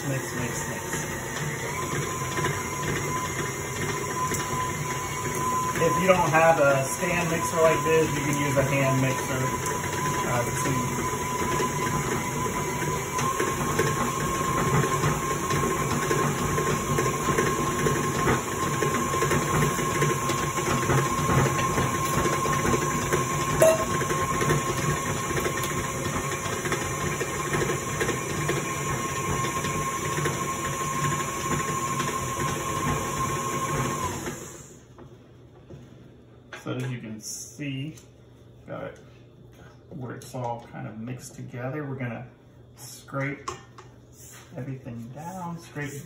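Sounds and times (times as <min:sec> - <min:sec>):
mix churning in steel bowl: 0:00.0 - 0:34.6
stand mixer motor whine: 0:00.0 - 0:35.0.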